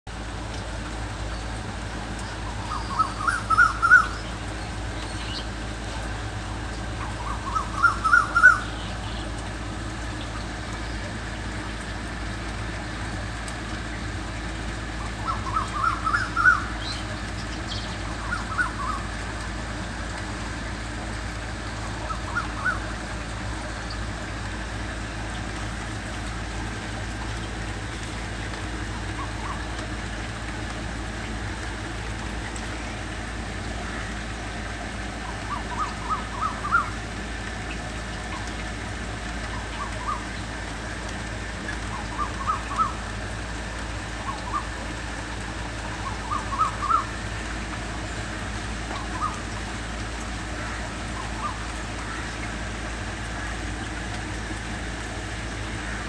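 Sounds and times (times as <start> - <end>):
rain falling on leaves: 0.1 - 56.0
cuckoo calling: 2.2 - 5.5, 6.8 - 9.4, 15.0 - 19.2, 21.8 - 24.1, 28.8 - 29.9, 35.2 - 37.0, 39.5 - 40.5, 41.6 - 43.1, 44.1 - 44.8, 45.7 - 47.3, 48.9 - 49.6, 50.6 - 52.4.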